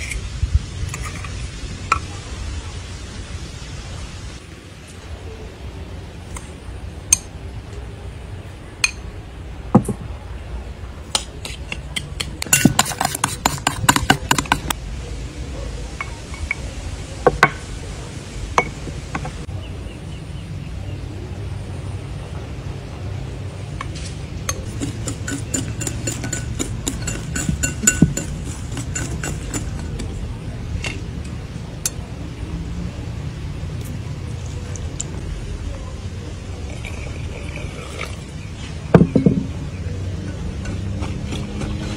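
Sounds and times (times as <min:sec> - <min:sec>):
spoon clinking on bowl: 0:24.5 - 0:30.0
whisk clinking on glass bowl: 0:24.6 - 0:30.1.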